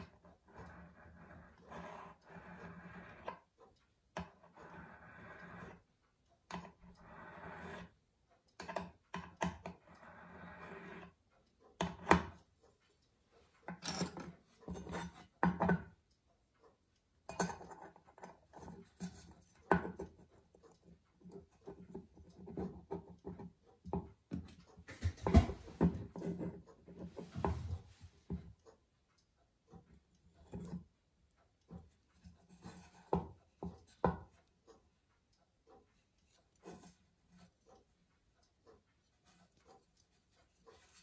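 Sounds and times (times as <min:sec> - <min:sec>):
hand file rasping on metal: 0:00.0 - 0:03.4, 0:04.2 - 0:05.8, 0:07.0 - 0:08.0, 0:09.8 - 0:11.2.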